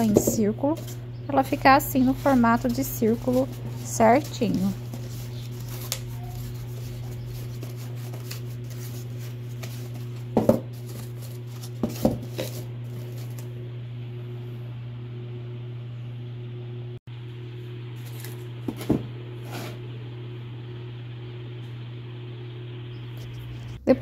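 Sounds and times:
steady low hum: 0.0 - 24.0
cardboard rustling and knocking: 9.6 - 13.2, 18.6 - 19.1.

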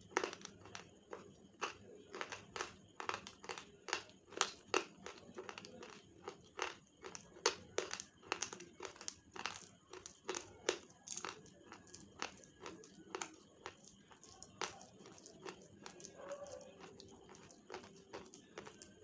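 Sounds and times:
chewing brittle sticks crunching: 0.0 - 19.0.

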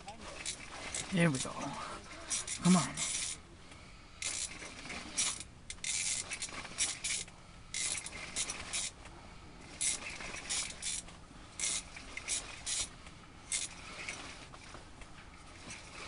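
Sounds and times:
clothing and gear rustling: 0.0 - 3.4, 4.3 - 16.0.

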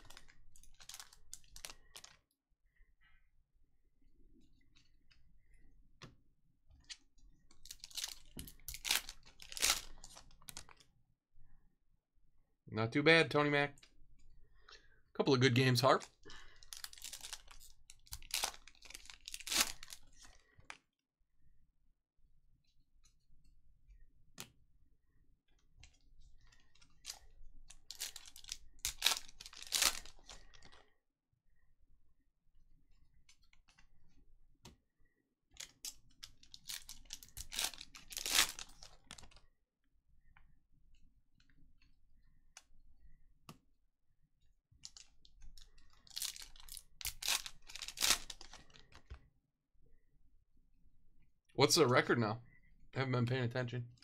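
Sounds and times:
card wrappers tearing and crinkling: 0.0 - 2.2, 7.6 - 10.7, 15.8 - 20.4, 27.0 - 30.7, 35.6 - 39.4, 44.8 - 48.8.

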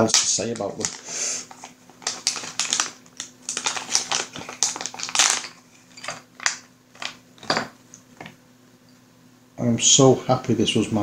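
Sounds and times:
plastic bags crinkling: 0.0 - 7.6.

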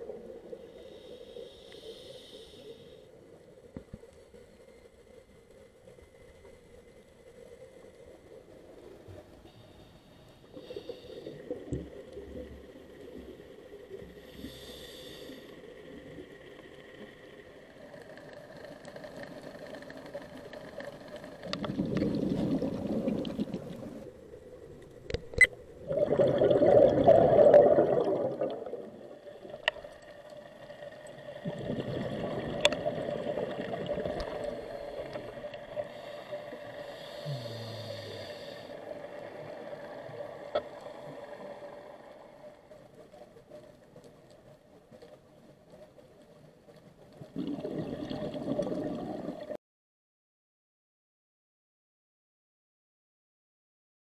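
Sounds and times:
underwater bubbling rumble: 15.8 - 37.2, 38.3 - 49.6.

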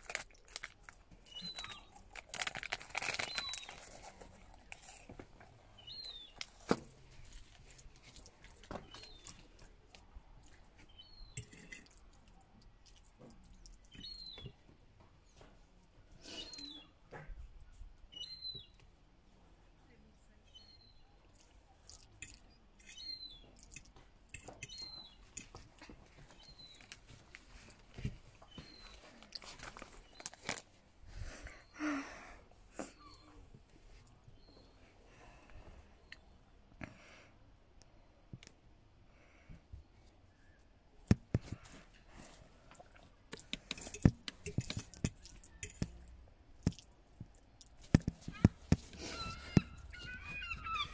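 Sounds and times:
faint bird-like chirps: 16.3 - 17.0, 18.1 - 18.8.

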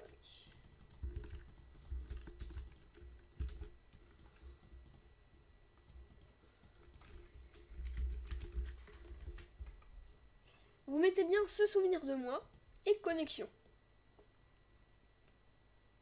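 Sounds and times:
computer keyboard clicking: 0.4 - 5.0, 5.8 - 9.5
mouse clicking: 5.8 - 9.5.

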